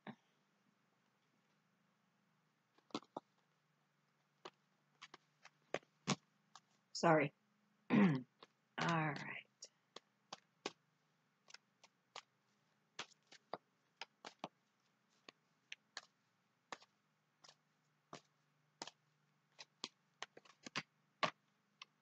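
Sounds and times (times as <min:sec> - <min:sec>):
cards being shuffled: 0:02.8 - 0:03.4, 0:04.4 - 0:06.8, 0:09.9 - 0:10.8, 0:11.4 - 0:22.0.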